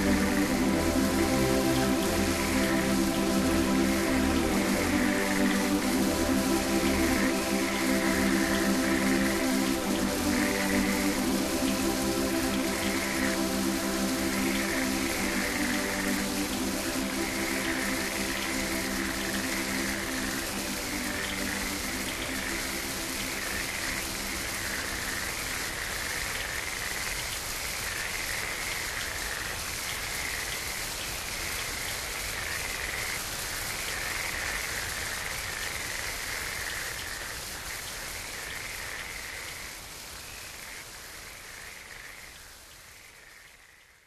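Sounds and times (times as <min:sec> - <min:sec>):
higher wavering electronic layer: 0:00.0 - 0:25.9
low sustained tones: 0:00.0 - 0:25.9
steady electronic hiss: 0:00.0 - 0:43.8.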